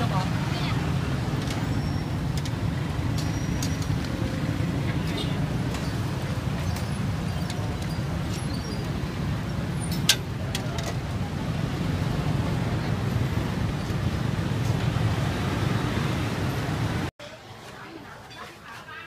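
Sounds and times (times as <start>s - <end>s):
low rumble of traffic: 0.0s - 18.2s.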